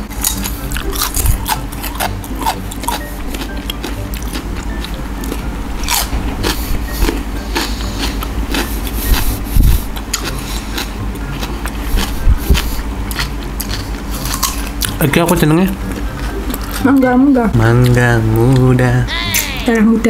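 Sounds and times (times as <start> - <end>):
crunching and chewing fruit: 0.0 - 16.9
low thumps: 5.5 - 7.1.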